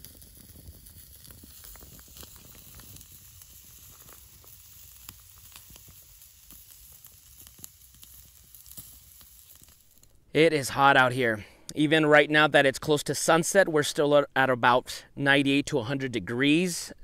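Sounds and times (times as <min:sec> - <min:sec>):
sausages sizzling on a grill: 0:00.0 - 0:10.2
burning wood crackling: 0:00.0 - 0:16.2.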